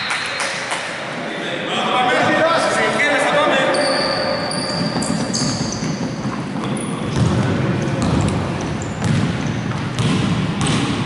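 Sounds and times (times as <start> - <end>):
sneaker squeaks: 0.0 - 0.8, 3.5 - 11.0
basketball dribbling on hardwood: 4.7 - 11.0.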